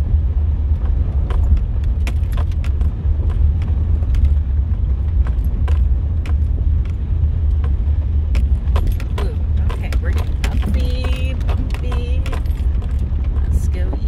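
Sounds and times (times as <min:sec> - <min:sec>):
wind and road noise rumble: 0:00.0 - 0:14.0
cabin rattles and clicks: 0:07.6 - 0:14.0.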